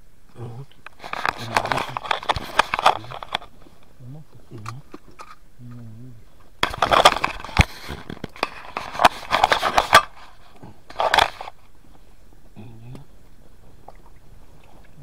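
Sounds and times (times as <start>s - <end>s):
faint voice: 12.6s - 13.1s.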